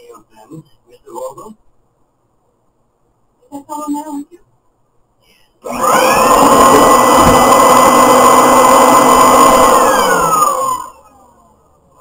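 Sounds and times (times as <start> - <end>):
electric motor whining: 5.6 - 11.1.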